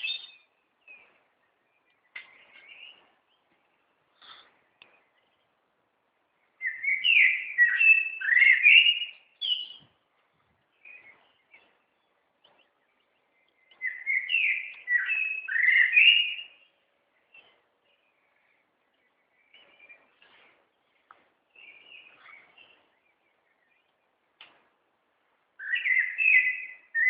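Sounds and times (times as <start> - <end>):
songbird warbling: 6.6 - 9.9, 10.7 - 24.1, 25.6 - 27.0.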